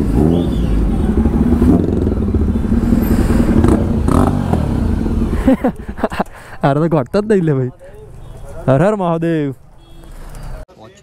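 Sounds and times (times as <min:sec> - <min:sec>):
motorcycle engine running: 0:00.0 - 0:07.0.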